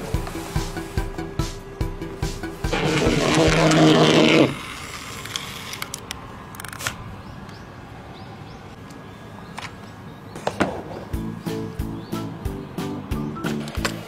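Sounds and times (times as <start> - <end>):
background music with beat: 0.0 - 3.8, 11.2 - 14.0.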